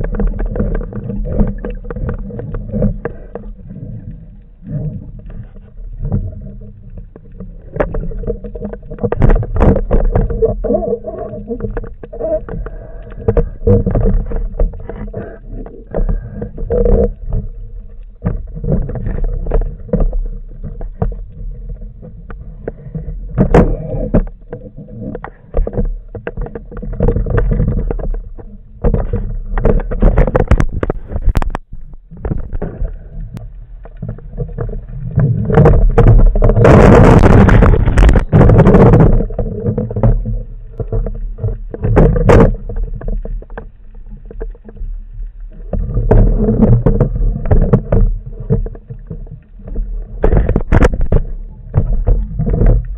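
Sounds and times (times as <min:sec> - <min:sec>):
low underwater rumble: 0:00.0 - 0:52.9
rush of water and bubbles: 0:00.0 - 0:52.9
clicks and knocks from speargun: 0:22.2 - 0:33.0, 0:45.7 - 0:52.9.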